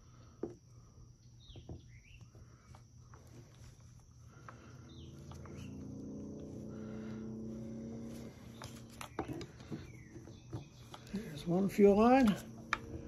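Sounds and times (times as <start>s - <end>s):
birds chirping: 0.0s - 13.0s
engine drone: 3.2s - 13.0s.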